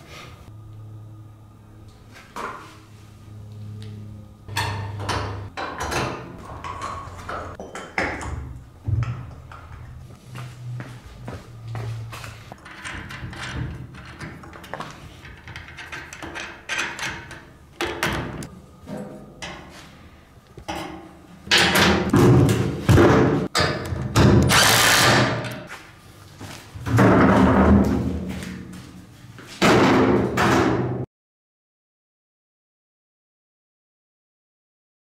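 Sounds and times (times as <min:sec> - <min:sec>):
wheelbarrow knocking and scraping: 0:26.8 - 0:28.6.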